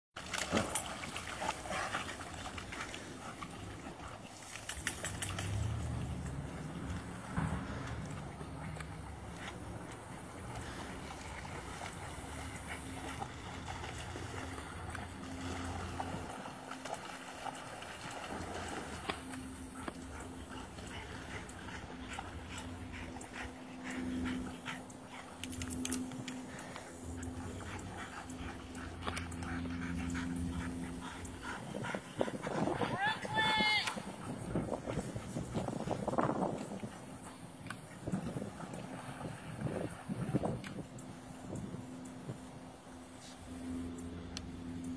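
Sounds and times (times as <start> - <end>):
dog splashing in shallow water: 0.2 - 24.2
steady low hum: 0.2 - 33.3, 33.9 - 44.9
dog panting: 19.1 - 33.0.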